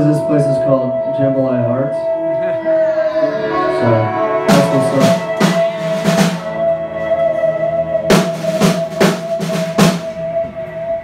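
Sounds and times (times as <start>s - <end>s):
amplified held tone: 0.0s - 11.0s
drum kit crashing hits: 4.5s - 6.6s, 8.1s - 10.2s.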